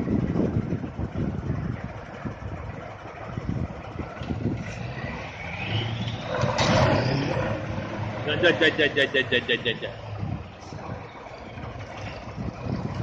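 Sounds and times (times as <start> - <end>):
diesel truck engine running: 0.0 - 13.0
rising whine: 4.2 - 8.7.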